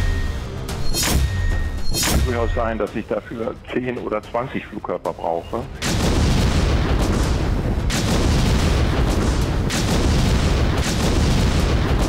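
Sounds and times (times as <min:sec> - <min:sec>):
rumble of explosions and gunfire: 0:00.0 - 0:12.0
sharp blasts: 0:00.8 - 0:02.6, 0:05.8 - 0:12.0.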